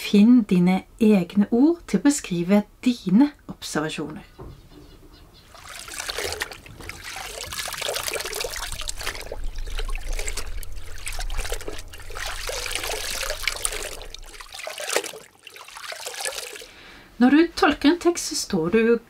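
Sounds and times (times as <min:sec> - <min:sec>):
water trickling and pouring: 0:05.4 - 0:16.8
low rumble: 0:06.7 - 0:14.6.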